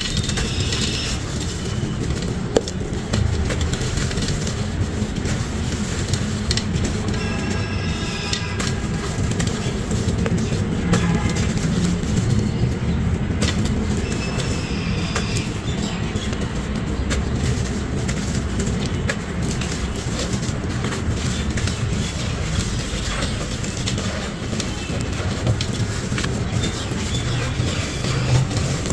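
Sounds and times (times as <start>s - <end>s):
gritty crunching in clay pot: 0.0s - 28.9s.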